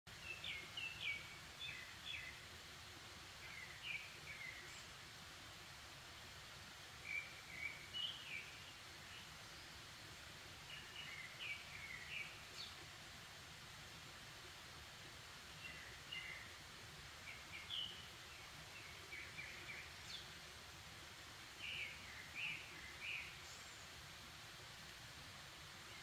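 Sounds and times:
faint outdoor background noise: 0.1s - 26.0s.

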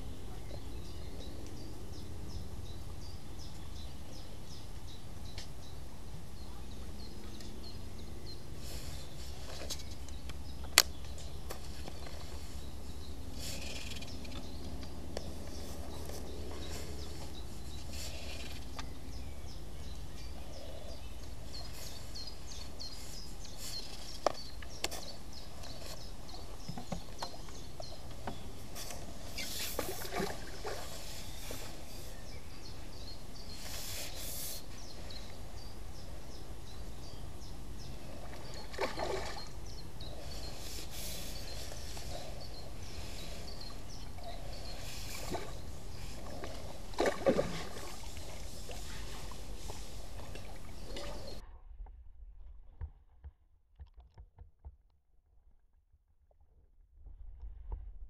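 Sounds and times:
small birds chirping: 0.0s - 51.4s
fish splashing in water: 28.7s - 31.7s, 38.1s - 39.6s, 44.5s - 51.4s
low rumble: 49.2s - 53.7s.

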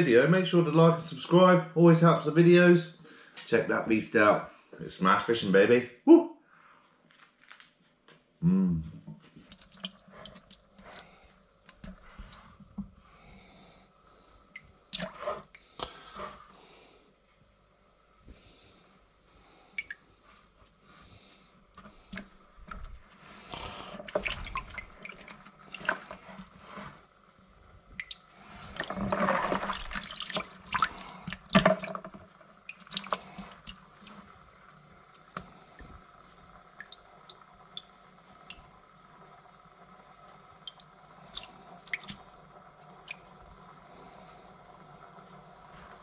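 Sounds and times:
water splashing in bucket: 9.4s - 13.0s, 14.6s - 15.6s, 21.8s - 27.0s, 27.9s - 34.4s, 40.6s - 42.3s.

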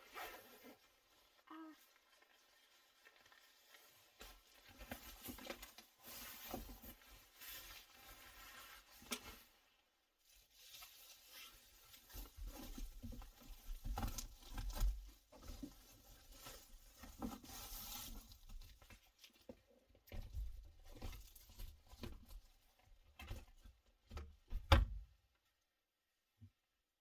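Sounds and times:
rustling and crinkling covers: 0.0s - 24.7s.

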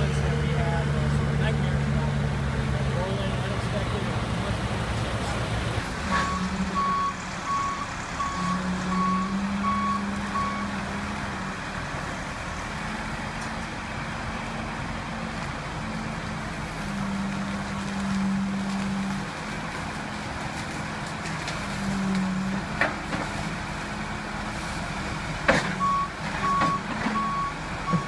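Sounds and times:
diesel machinery running: 0.0s - 28.0s
backup alarm beeping: 6.1s - 10.7s.

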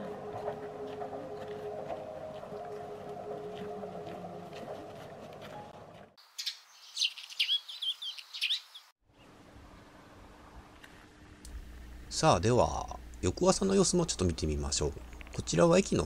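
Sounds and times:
small birds twittering: 6.2s - 8.9s
low background hum: 9.2s - 16.0s.

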